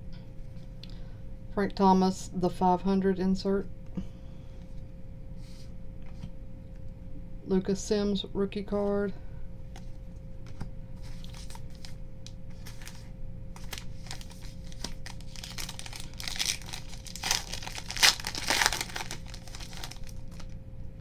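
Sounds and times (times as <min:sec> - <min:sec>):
foil wrapper crinkling: 0:11.0 - 0:20.6
foil wrapper tearing: 0:11.1 - 0:20.6.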